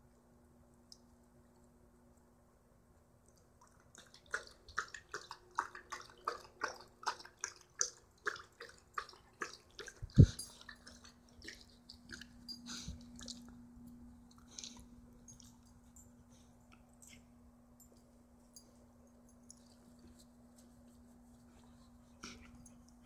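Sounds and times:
dog panting and mouthing: 0:09.4 - 0:13.4.

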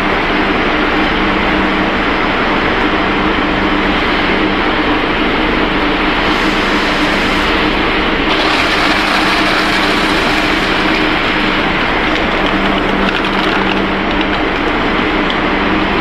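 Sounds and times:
loud machine noise: 0:00.0 - 0:16.0
motor hum: 0:06.2 - 0:16.0.

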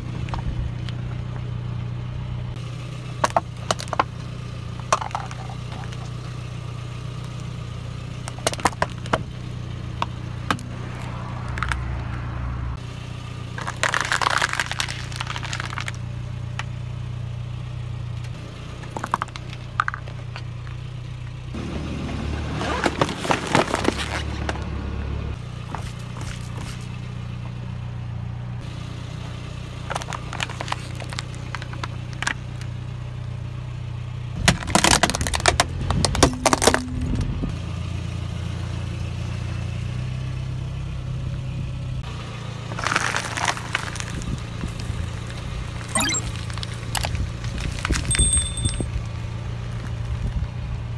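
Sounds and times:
car engine idling: 0:00.0 - 0:21.6
tyre crunching plastic objects: 0:13.6 - 0:16.0.

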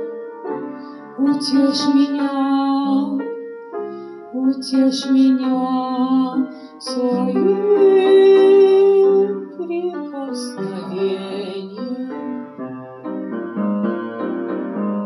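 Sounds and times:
piano accompaniment: 0:00.0 - 0:15.0
woman singing: 0:01.2 - 0:03.2, 0:04.4 - 0:12.5.

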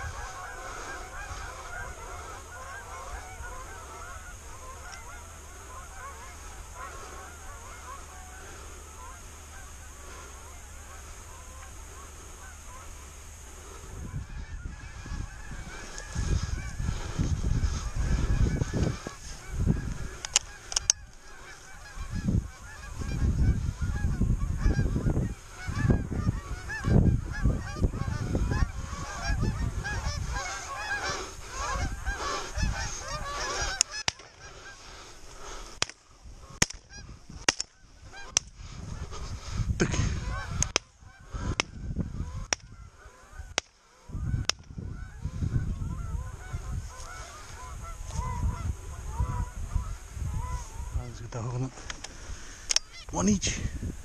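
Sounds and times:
geese honking: 0:00.0 - 0:53.6
wind rumbling on microphone: 0:00.0 - 0:54.0
sharp clicks: 0:20.2 - 0:21.2, 0:36.6 - 0:38.5, 0:40.6 - 0:40.9.

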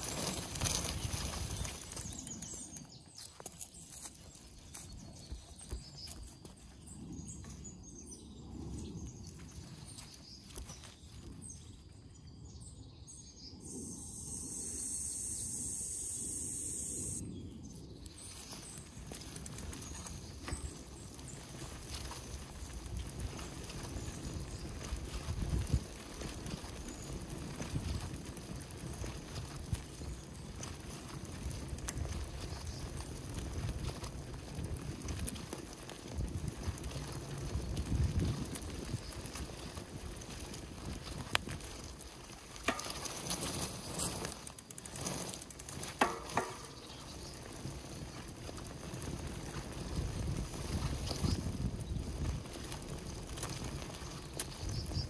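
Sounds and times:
bike tyres rolling over ground: 0:00.0 - 0:55.0
wind: 0:00.0 - 0:55.0
bike knocks and clicks: 0:42.5 - 0:49.8.

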